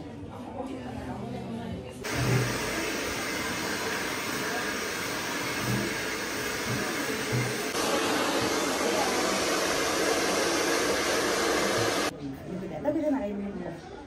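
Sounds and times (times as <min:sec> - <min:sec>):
blow dryer blowing air: 0:02.0 - 0:12.1.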